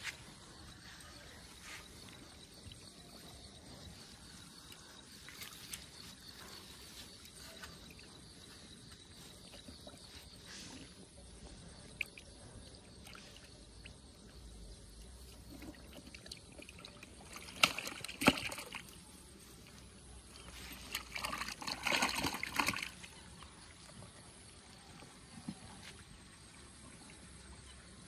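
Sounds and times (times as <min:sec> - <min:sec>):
sloshing and trickling water: 0:00.2 - 0:28.0
sharp water splashes: 0:15.8 - 0:19.0, 0:20.8 - 0:23.1.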